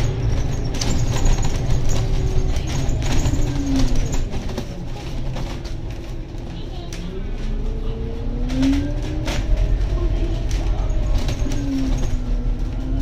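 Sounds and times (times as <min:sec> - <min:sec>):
bodywork rattles and clicks: 0:00.0 - 0:07.1, 0:08.4 - 0:13.0
bus engine and road rumble: 0:00.0 - 0:13.0
engine drone rising and falling: 0:07.1 - 0:13.0.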